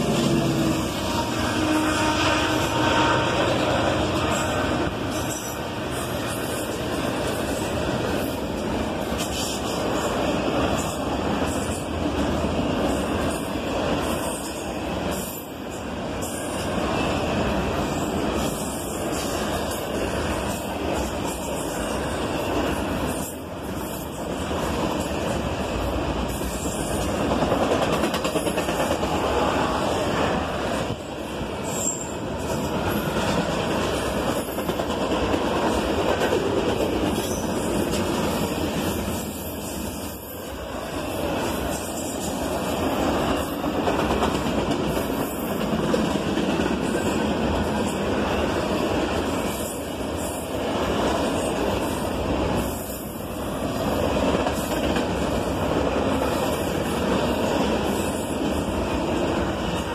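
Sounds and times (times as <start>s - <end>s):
freight cars rumbling on rails: 0.0s - 59.9s.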